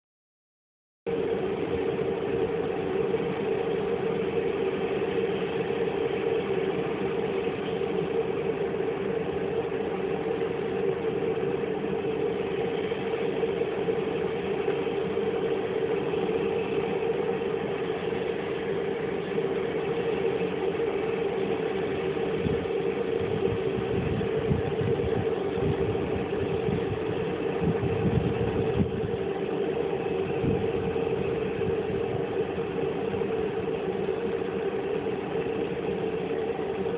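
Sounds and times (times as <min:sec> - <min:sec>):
aircraft engine idling: 0:01.1 - 0:36.9.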